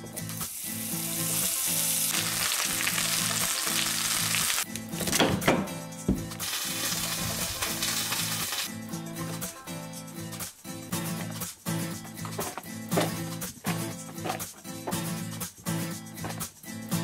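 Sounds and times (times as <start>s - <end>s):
background music: 0.0s - 17.0s
meat sizzling in a skillet: 0.2s - 4.7s, 6.4s - 8.7s.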